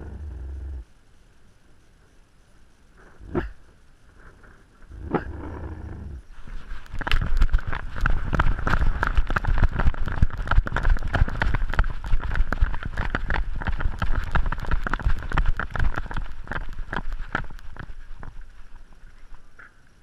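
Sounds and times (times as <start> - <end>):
low rumble: 0.0 - 0.9.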